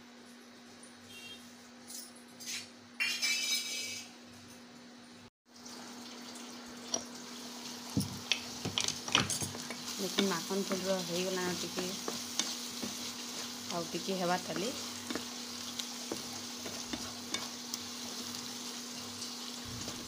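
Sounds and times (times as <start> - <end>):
curry sizzling in pan: 5.6 - 20.0.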